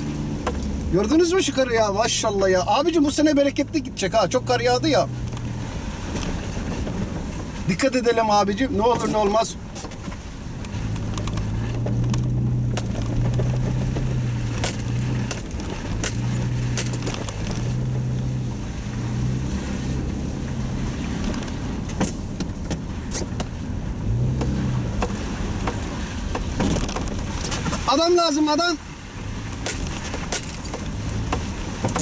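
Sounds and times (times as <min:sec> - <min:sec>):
car engine droning: 0:00.0 - 0:32.0
light clicks and rattles: 0:08.9 - 0:17.9, 0:29.4 - 0:32.0.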